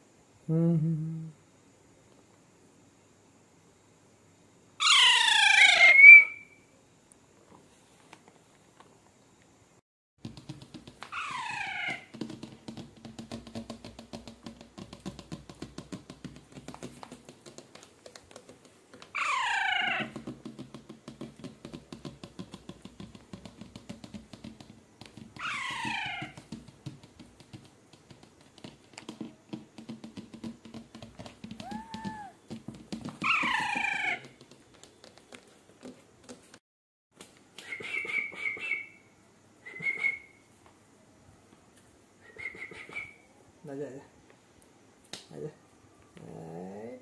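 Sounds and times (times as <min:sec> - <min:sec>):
parakeet squawking: 0:04.8 - 0:06.3, 0:11.1 - 0:12.0, 0:19.2 - 0:20.0, 0:25.4 - 0:26.3.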